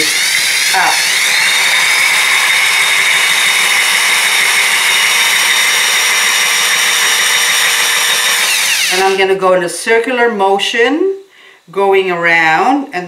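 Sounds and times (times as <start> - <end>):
drill whining: 0.0 - 9.2
hole saw grinding ceramic: 0.0 - 9.2.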